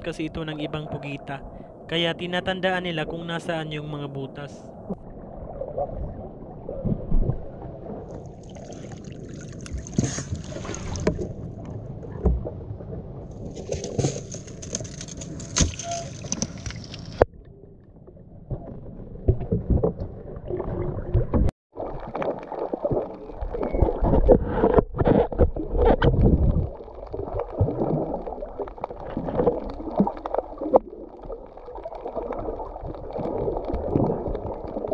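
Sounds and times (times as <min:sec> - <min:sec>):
muffled underwater rush: 0:00.0 - 0:13.8, 0:16.0 - 0:34.9
water lapping around boat: 0:07.8 - 0:12.5.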